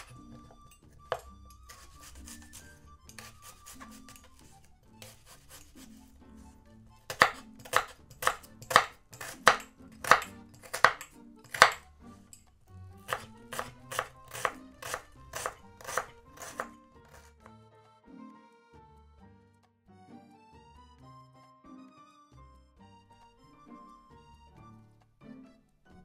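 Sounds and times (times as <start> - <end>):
knife chopping on wooden board: 0.0 - 6.1, 7.0 - 11.9, 12.9 - 17.5.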